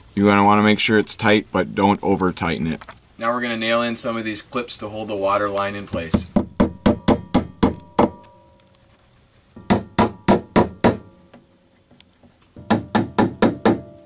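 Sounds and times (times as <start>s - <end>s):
hammer blows on nails: 9.6s - 11.3s, 12.6s - 14.0s.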